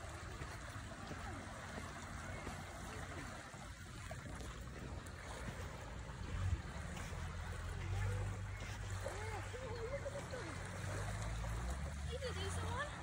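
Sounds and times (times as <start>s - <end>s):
wind rumble on microphone: 0.0s - 9.1s
small waves lapping on shore: 0.0s - 13.0s.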